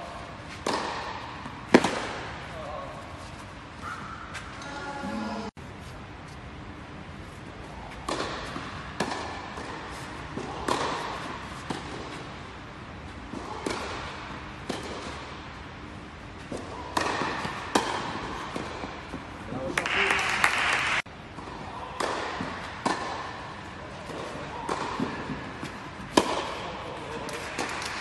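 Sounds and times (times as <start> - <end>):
tennis ball hits with echo: 0.6 - 2.5, 7.9 - 12.4, 13.3 - 15.4, 16.5 - 20.0, 21.3 - 28.0.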